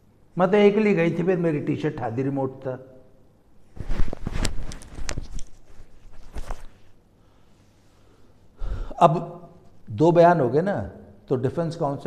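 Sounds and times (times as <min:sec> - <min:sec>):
cloth rustling on lapel microphone: 0:03.6 - 0:07.0.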